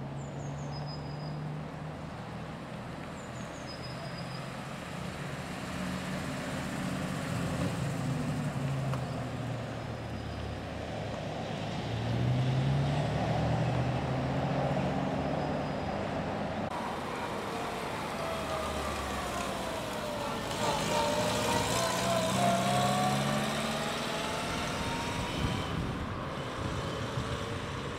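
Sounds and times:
car accelerating: 16.2s - 27.9s.

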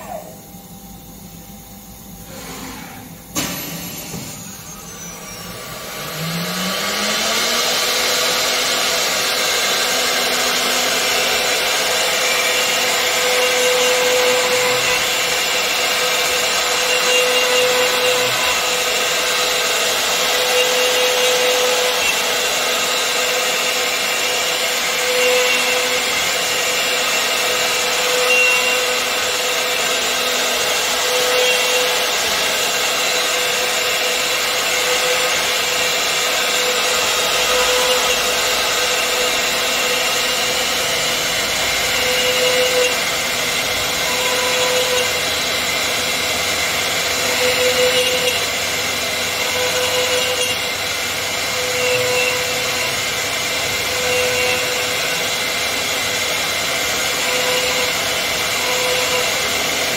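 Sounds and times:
cnc machine spindle whining: 0.0s - 59.9s.

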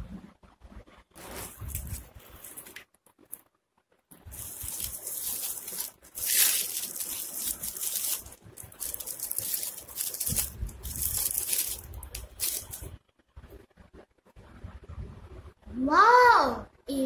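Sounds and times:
crinkly wrapper crackling: 1.2s - 3.5s, 4.1s - 13.0s.

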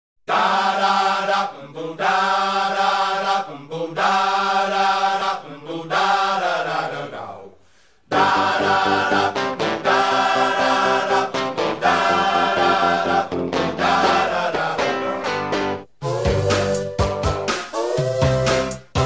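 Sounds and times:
lively music cue: 8.1s - 19.0s.

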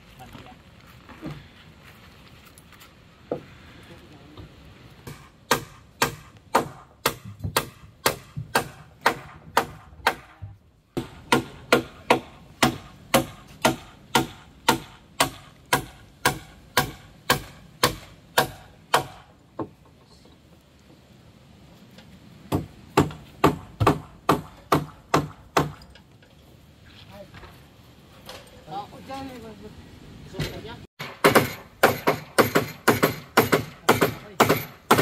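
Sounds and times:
hammer driving nails into wood: 5.0s - 10.4s, 11.0s - 19.7s, 22.5s - 25.9s, 31.0s - 35.0s.

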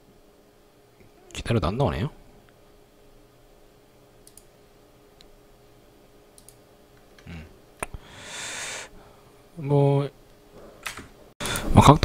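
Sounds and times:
computer mouse clicks: 4.2s - 4.5s, 6.4s - 6.6s.

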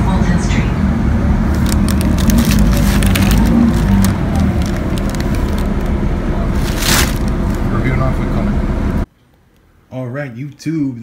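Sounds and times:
bus engine and road rumble: 0.0s - 9.9s
tissue paper and box crinkling: 1.5s - 7.7s.

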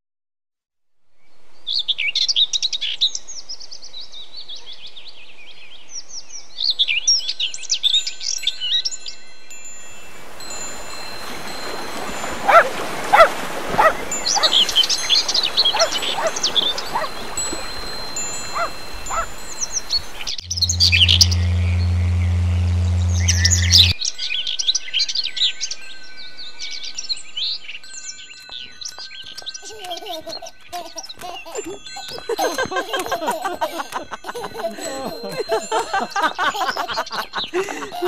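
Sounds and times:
high ringing chime tones: 8.6s - 24.0s
songbirds chirping: 10.2s - 37.7s.

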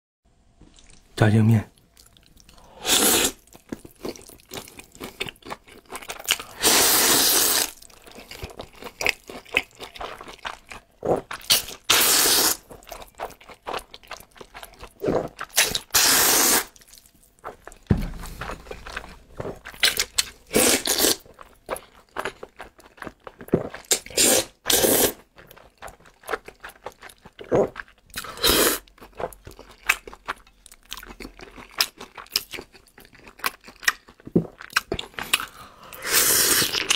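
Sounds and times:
slurping noodles: 2.6s - 3.4s, 6.4s - 7.8s, 11.6s - 12.6s, 15.0s - 16.8s, 19.8s - 21.3s, 23.9s - 25.2s, 28.2s - 28.8s, 35.4s - 36.9s.

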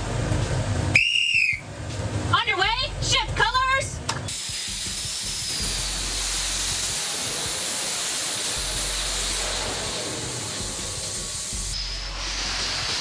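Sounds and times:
distant jet engines hissing: 4.0s - 13.0s.

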